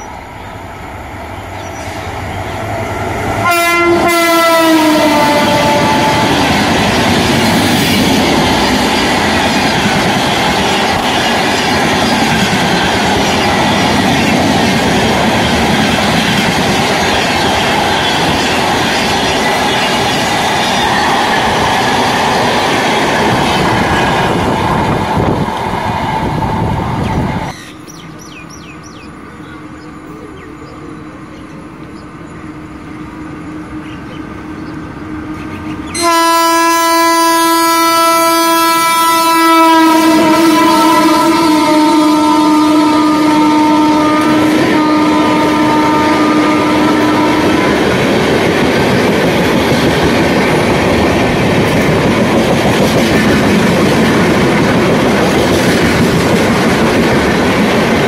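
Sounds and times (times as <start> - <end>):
distant train rumble: 0.0 - 58.0
train wheels clattering on rails: 5.1 - 29.1, 46.6 - 58.0.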